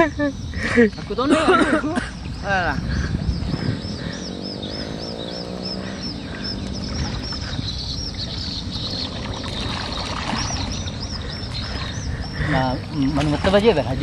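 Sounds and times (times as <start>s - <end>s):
river water lapping: 0.0s - 14.0s
high chirping call: 2.2s - 13.2s.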